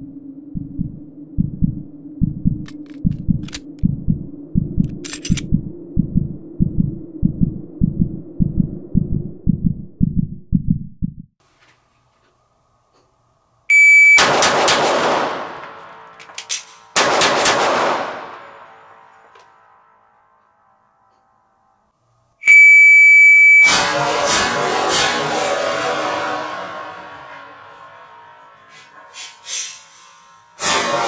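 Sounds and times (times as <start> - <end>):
low hum: 0.0 - 11.4, 14.9 - 31.0
low pulsing throb: 0.0 - 11.4
shot timer beep: 13.7 - 14.3, 22.4 - 23.8
pistol shot indoors: 14.1 - 18.9.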